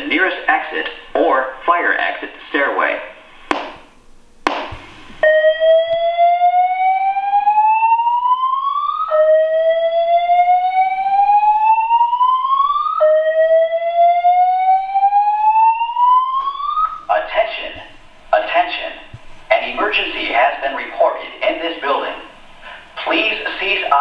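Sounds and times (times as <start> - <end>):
rising whoop alarm tone: 5.2 - 17.0.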